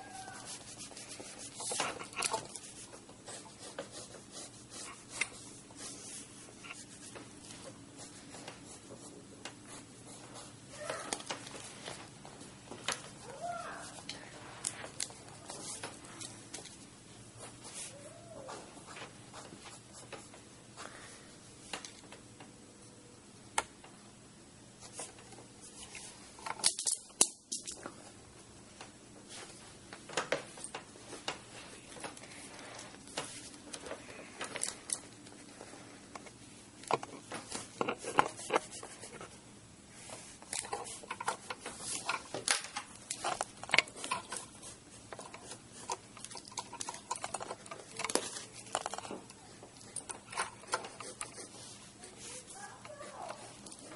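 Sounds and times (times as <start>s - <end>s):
pencil scratching on paper: 0.0s - 11.0s, 50.6s - 53.4s.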